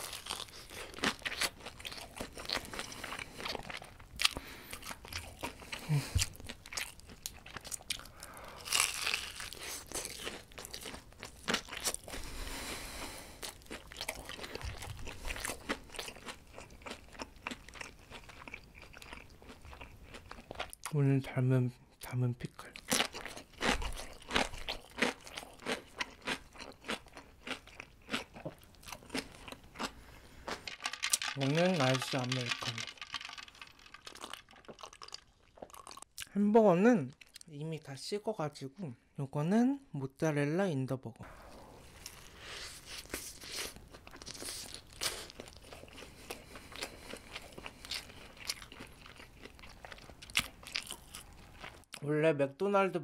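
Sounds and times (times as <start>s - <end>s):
pickle slices being chewed: 22.8s - 36.3s, 42.0s - 52.0s
biting into a burger: 42.0s - 52.0s.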